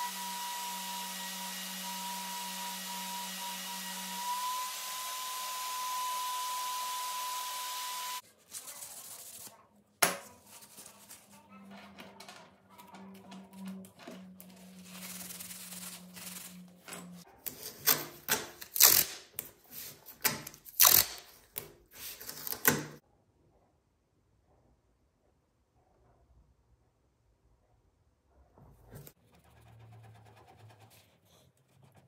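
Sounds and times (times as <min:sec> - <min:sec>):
masking tape tearing off roll: 0:17.4 - 0:19.6, 0:20.2 - 0:23.0.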